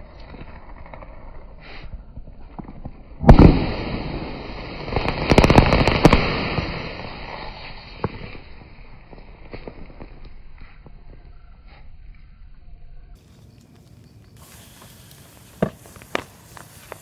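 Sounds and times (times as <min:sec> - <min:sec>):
sharp cracks of sparks: 0:02.8 - 0:10.7, 0:14.2 - 0:17.0
burning metal fizzing hiss: 0:14.3 - 0:17.0.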